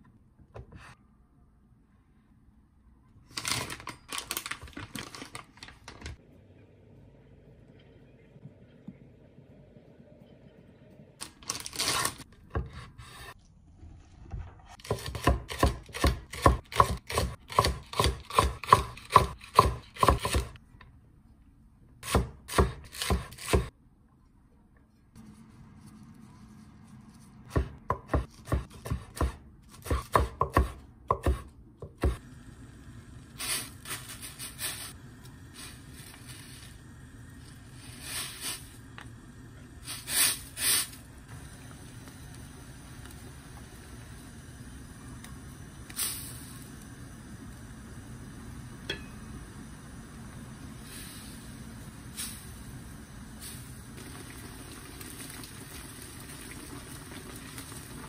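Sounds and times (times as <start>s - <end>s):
knife chopping on wooden board: 27.5s - 32.2s.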